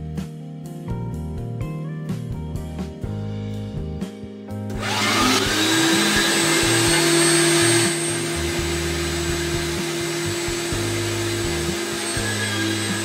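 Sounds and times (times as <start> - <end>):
electric meat grinder whining: 4.8 - 13.0.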